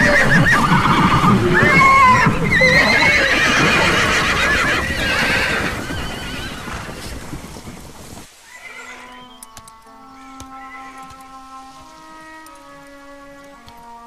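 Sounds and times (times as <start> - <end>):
horses whinnying: 0.0 - 7.8, 8.4 - 14.0
soft music: 8.9 - 14.0.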